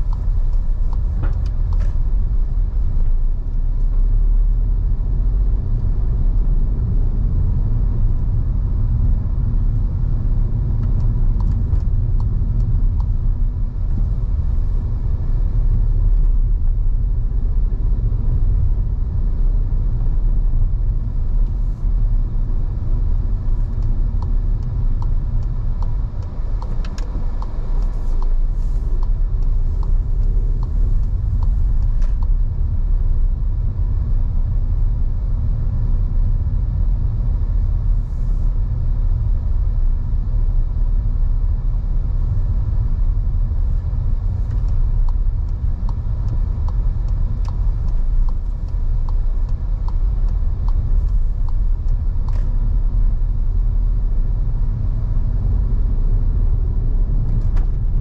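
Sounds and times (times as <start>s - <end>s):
car road and engine rumble: 0.0s - 58.0s
light regular ticking: 22.9s - 32.8s, 43.8s - 54.0s.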